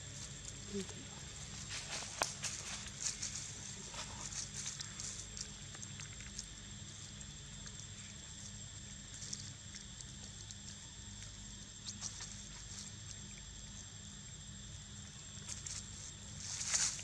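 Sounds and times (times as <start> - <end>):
dry leaves crackling: 0.0 - 6.4, 15.4 - 17.0
steady low hum: 0.0 - 17.0.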